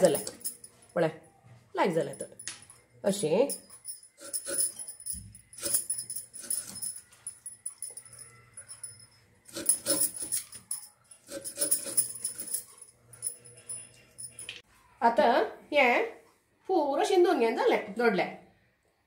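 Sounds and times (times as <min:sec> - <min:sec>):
metal bangles jingling: 0:00.0 - 0:01.0, 0:02.0 - 0:14.6
knife scraping fruit peel: 0:11.2 - 0:12.5.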